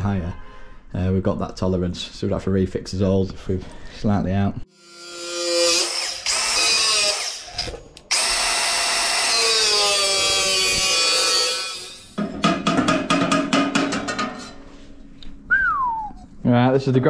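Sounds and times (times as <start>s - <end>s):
angle grinder cutting steel: 4.7s - 12.2s
sharp knocks: 12.2s - 14.4s.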